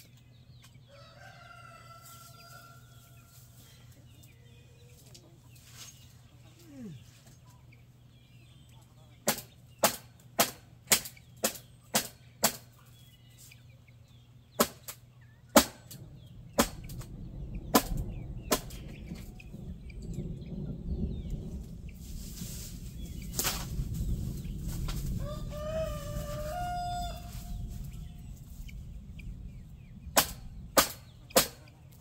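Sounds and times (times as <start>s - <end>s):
low rumbling: 15.2s - 32.0s
sharp knocks: 16.6s - 17.0s.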